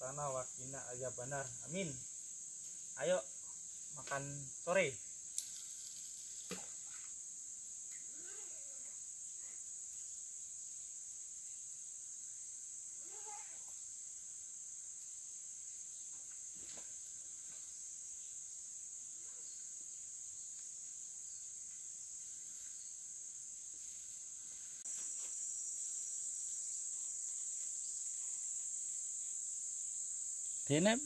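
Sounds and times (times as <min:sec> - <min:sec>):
chorus of insects droning: 0:00.0 - 0:31.0.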